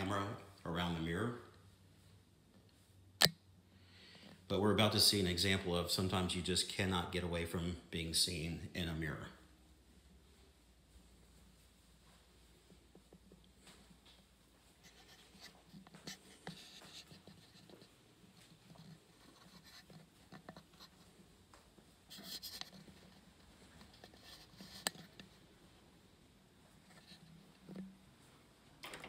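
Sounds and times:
soft scratchy bursts: 0:04.4 - 0:28.6
footsteps: 0:04.5 - 0:28.6
faint rustling: 0:08.3 - 0:28.8.

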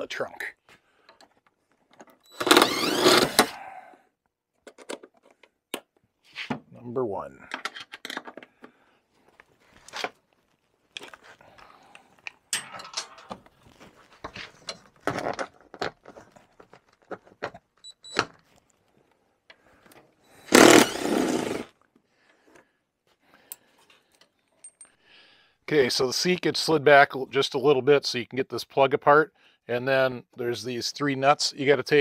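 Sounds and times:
cordless power tool running: 0:02.4 - 0:03.5, 0:20.4 - 0:21.7.

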